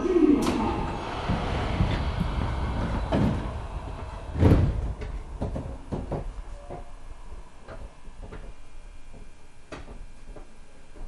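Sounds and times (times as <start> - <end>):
train sliding doors closing: 0.0 - 8.4
low hum of stopped train: 0.0 - 11.0
heavy thud: 0.5 - 7.0.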